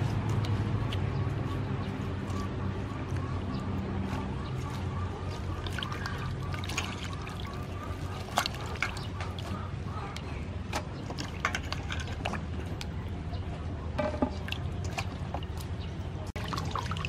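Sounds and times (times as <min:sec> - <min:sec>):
water splashing in a steel bowl: 0:05.3 - 0:09.6, 0:14.0 - 0:17.0.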